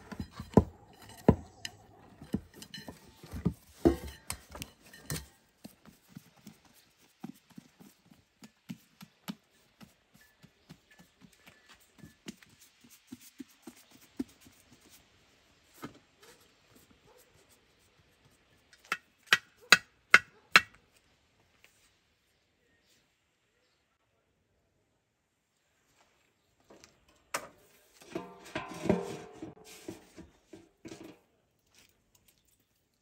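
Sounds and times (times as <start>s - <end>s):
dough patted on griddle: 6.9s - 10.9s.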